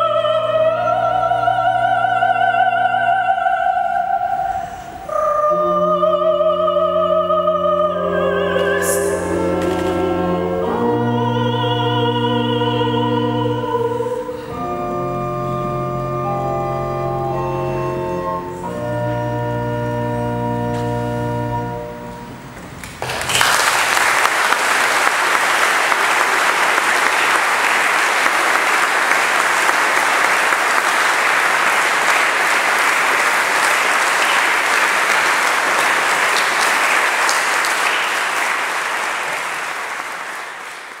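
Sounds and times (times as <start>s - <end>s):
organ chord: 5.2s - 22.5s
congregation applauding: 22.6s - 41.0s.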